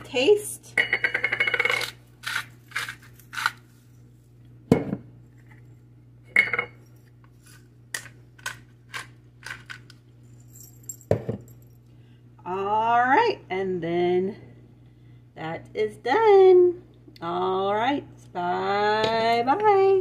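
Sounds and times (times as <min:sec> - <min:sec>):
objects knocked down on countertop: 0:04.7 - 0:05.0, 0:11.0 - 0:11.5.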